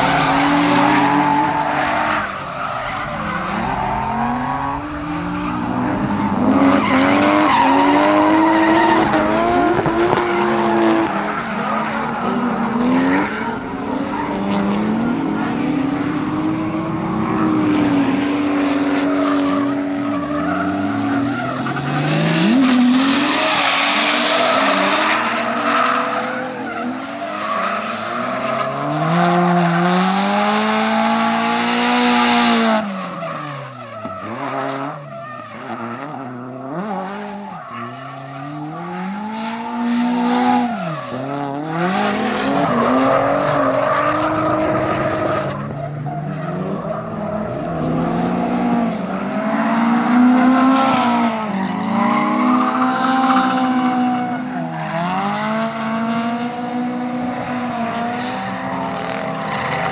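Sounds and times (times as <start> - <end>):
tyres squealing and skidding: 0.0 - 15.8, 16.4 - 56.0
car engine revving: 0.0 - 35.0.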